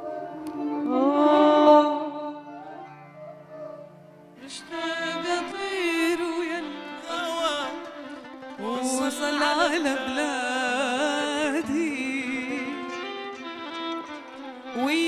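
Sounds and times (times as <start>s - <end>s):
woman singing with vibrato: 0.0s - 3.0s, 4.4s - 8.0s, 8.6s - 13.0s.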